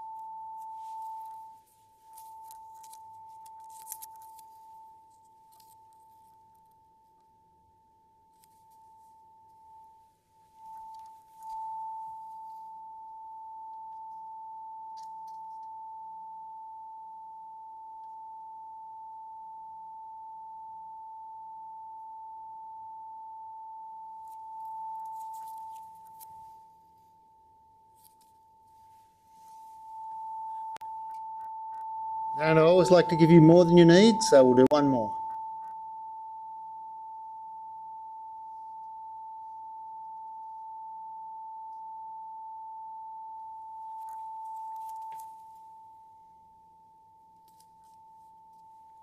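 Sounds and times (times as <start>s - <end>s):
faint rustling of handling: 0.0s - 7.4s, 8.2s - 13.0s, 24.2s - 32.0s, 43.9s - 45.8s
steady pure tone: 0.0s - 49.0s.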